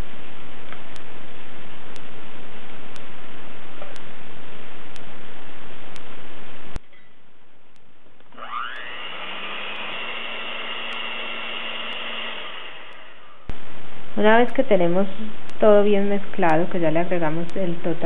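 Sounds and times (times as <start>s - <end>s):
electric hand mixer whine: 8.3s - 13.5s.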